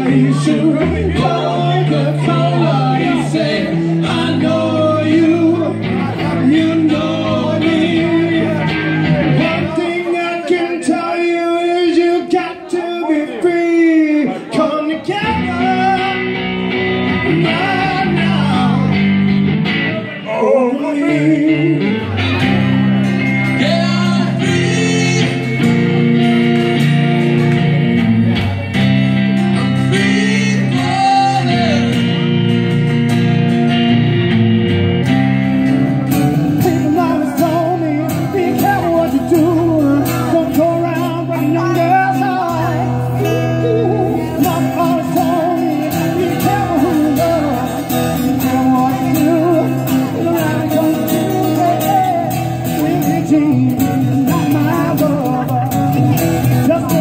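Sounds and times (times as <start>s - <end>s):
person singing melody: 0.0s - 11.7s, 35.6s - 57.0s
man singing: 0.0s - 28.3s, 29.4s - 32.8s, 35.6s - 57.0s
acoustic guitar band music: 0.0s - 57.0s
acoustic guitars strummed: 0.0s - 57.0s.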